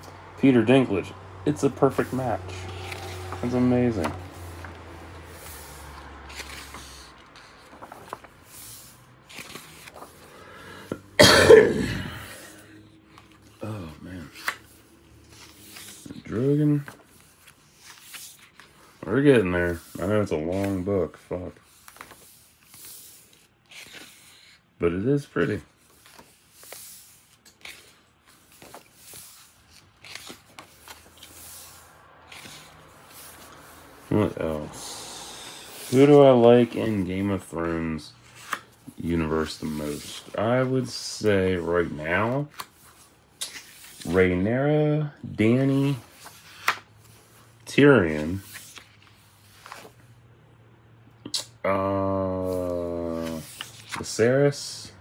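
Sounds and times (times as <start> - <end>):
paper rustling: 1.7 - 11.1, 12.4 - 44.4, 45.3 - 50.1, 52.3 - 54.7
hand brushing paper: 1.8 - 10.4, 25.4 - 40.8
page flipping: 1.9 - 11.1, 12.5 - 24.6, 25.4 - 34.7, 35.4 - 44.3, 45.5 - 50.1, 52.4 - 54.2.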